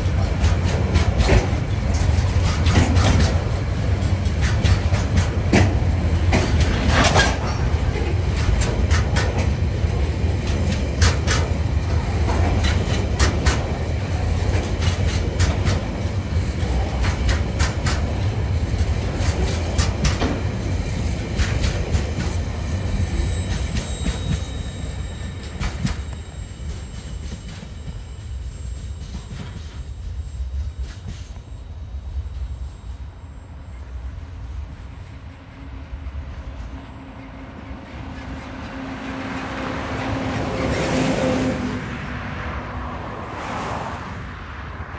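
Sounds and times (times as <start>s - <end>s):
wheels clicking over rail joints: 0.0s - 20.6s
faint high squeal: 22.3s - 34.0s.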